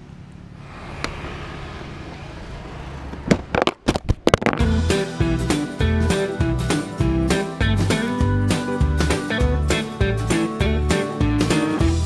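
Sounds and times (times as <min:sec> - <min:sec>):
country guitar tune with bass: 0:04.2 - 0:12.0.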